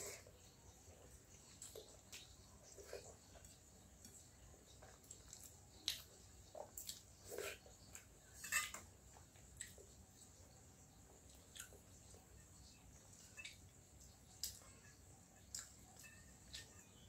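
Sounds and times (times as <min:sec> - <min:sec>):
chewing smacks and clicks: 0:01.4 - 0:08.1, 0:11.3 - 0:11.8, 0:15.4 - 0:16.9.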